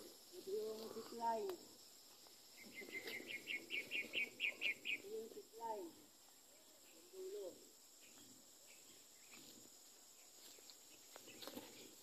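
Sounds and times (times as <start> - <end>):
rustling through weeds: 9.2 - 12.0.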